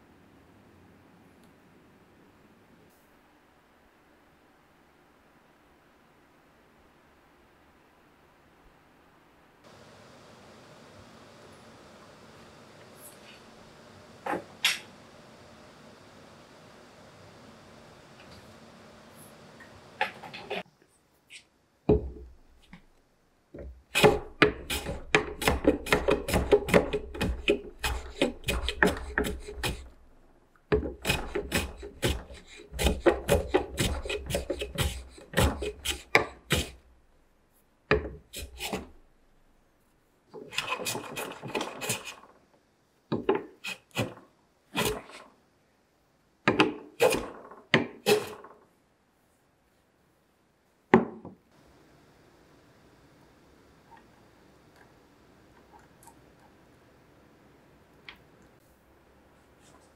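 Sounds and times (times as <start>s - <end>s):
hand plane shaving wood: 23.9s - 30.0s, 30.7s - 36.8s, 38.2s - 39.0s, 40.5s - 42.3s, 43.5s - 44.2s, 44.8s - 45.3s, 48.0s - 48.5s.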